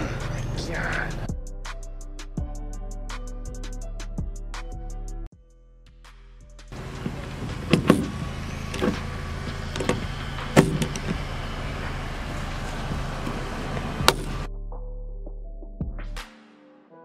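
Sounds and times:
steady low hum: 6.8s - 14.5s.

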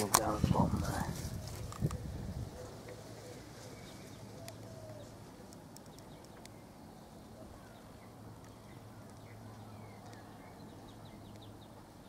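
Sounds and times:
faint sharp clicks: 4.4s - 6.6s, 8.4s - 10.3s, 11.2s - 11.6s.

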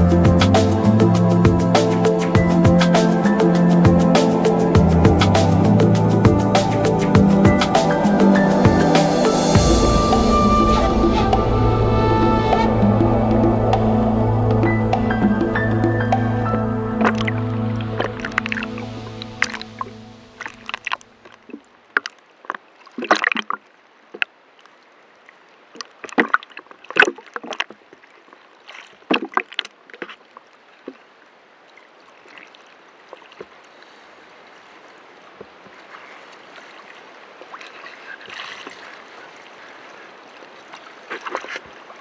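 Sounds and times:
rushing hiss of water: 0.0s - 21.0s
choppy water splashing: 0.0s - 42.0s.

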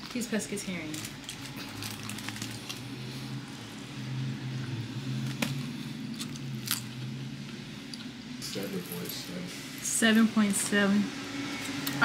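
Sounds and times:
steady low hum: 0.0s - 12.0s
clicks and rustles of eating: 0.8s - 2.9s.

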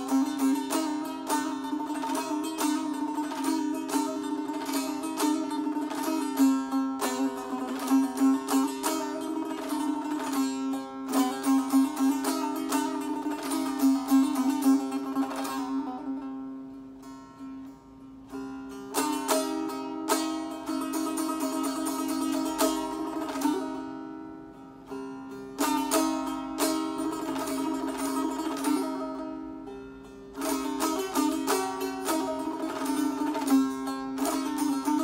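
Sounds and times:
long-necked lute strings plucked: 0.0s - 35.0s.

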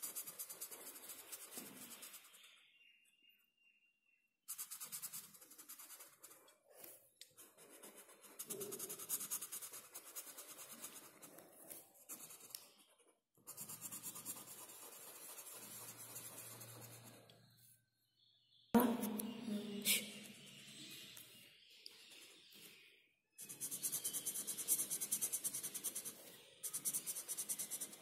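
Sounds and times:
marker scratching on paper: 0.0s - 2.6s, 4.5s - 17.3s, 23.4s - 28.0s.

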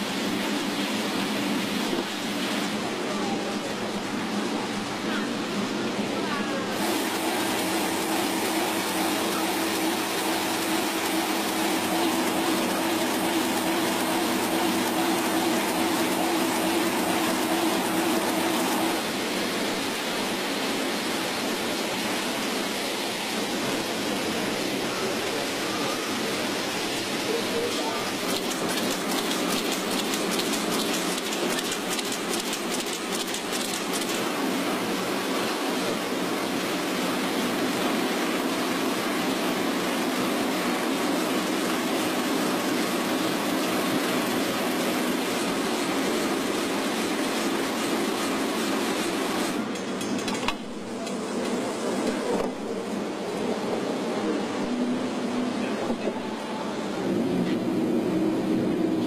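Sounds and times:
low machinery hum: 3.2s - 19.4s
machinery hiss: 6.6s - 37.0s
rapid fine clicking: 28.2s - 34.3s.

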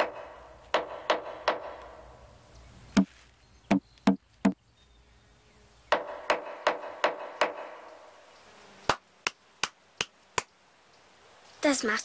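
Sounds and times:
knocking on wood: 0.0s - 1.8s, 3.7s - 4.6s, 5.9s - 7.7s.

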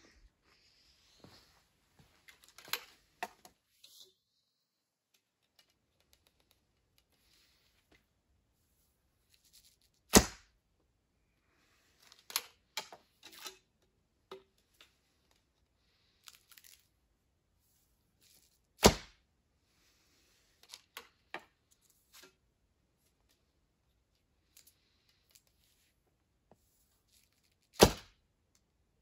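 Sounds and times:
arrow handling clicks and rustles: 2.0s - 4.4s, 5.0s - 8.1s, 9.2s - 10.4s, 11.8s - 17.0s, 17.7s - 18.8s, 20.2s - 23.5s, 24.1s - 28.7s.

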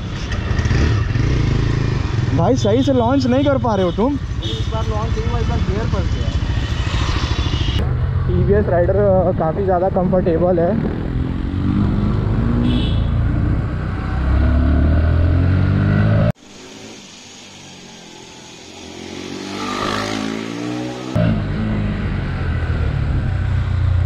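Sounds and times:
motorcycle engine accelerating: 0.0s - 2.9s, 4.2s - 17.2s.

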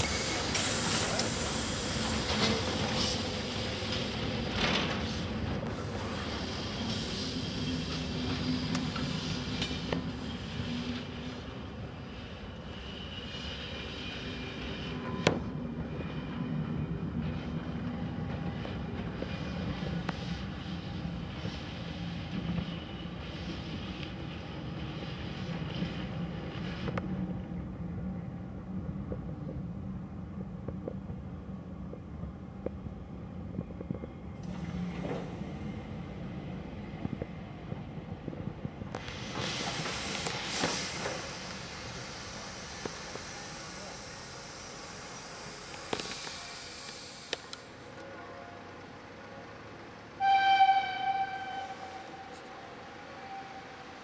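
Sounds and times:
train carriages rumbling on rails: 0.0s - 41.4s
train wheels clicking over rail joints: 38.4s - 43.3s
steam locomotive whistle blast: 50.2s - 52.4s, 53.2s - 53.9s.

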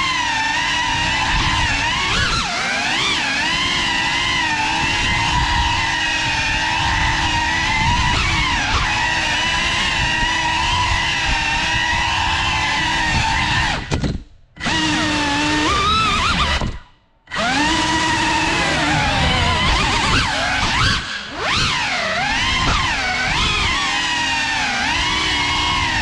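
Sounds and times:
drone motors whining: 17.3s - 26.0s.

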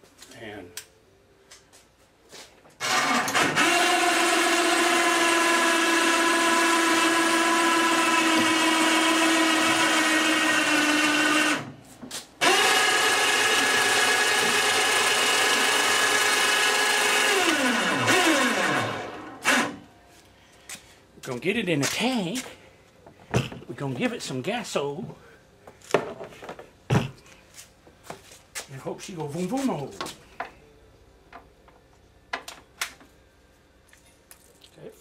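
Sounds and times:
electric hoist motor whining: 2.8s - 11.8s, 12.4s - 19.9s.

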